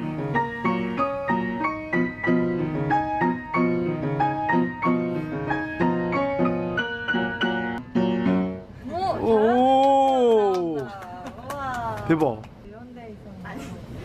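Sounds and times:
piano duet: 0.0s - 9.2s.

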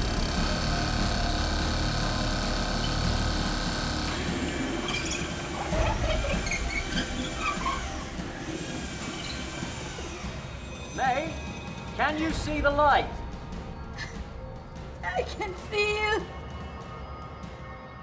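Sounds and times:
power drill boring into concrete: 0.0s - 4.3s.

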